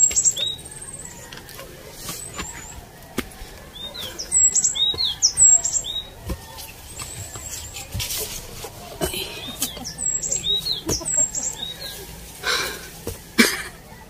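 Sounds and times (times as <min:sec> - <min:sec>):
high bird trill: 0:00.0 - 0:01.3, 0:03.7 - 0:07.9, 0:09.1 - 0:12.1
birds chirping: 0:00.0 - 0:14.0.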